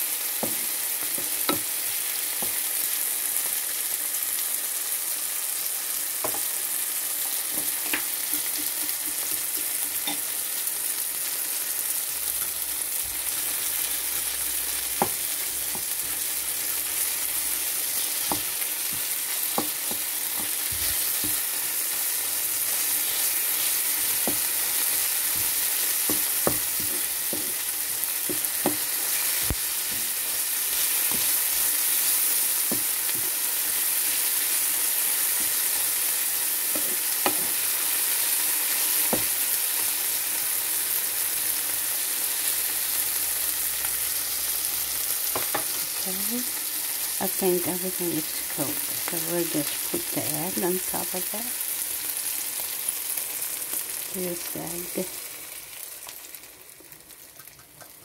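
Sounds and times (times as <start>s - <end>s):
vegetables sizzling in oil: 0.0s - 58.0s
spatula tapping and scraping pan: 7.5s - 10.3s, 18.2s - 21.5s, 23.9s - 27.6s, 36.7s - 37.6s.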